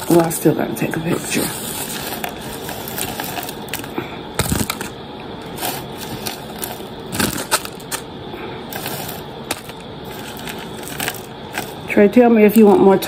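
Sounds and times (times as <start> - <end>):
tater tots dropping onto paper plates: 1.2 - 8.1, 8.7 - 11.9.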